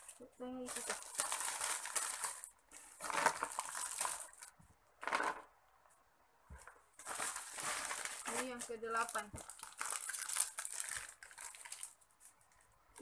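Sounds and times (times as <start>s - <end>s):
plastic packets crinkling: 0.0s - 5.4s, 7.0s - 13.0s
snacks rattling into plastic tub: 0.7s - 5.5s, 7.0s - 12.0s.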